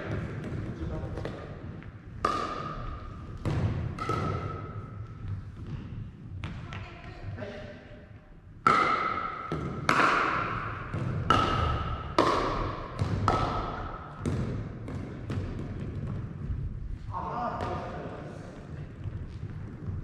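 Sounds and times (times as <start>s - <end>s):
paddles striking plastic ball: 0.1s - 5.8s, 8.6s - 16.3s.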